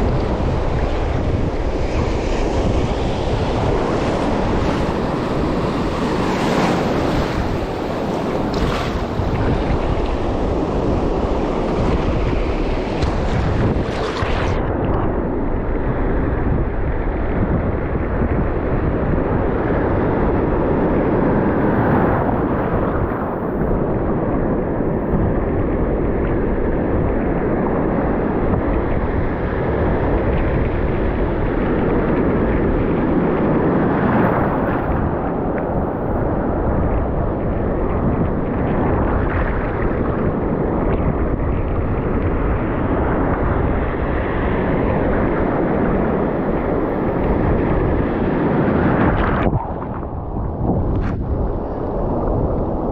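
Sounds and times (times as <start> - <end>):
breaking surf: 0.0 - 16.4, 27.3 - 52.9
wind buffeting microphone: 0.0 - 52.9.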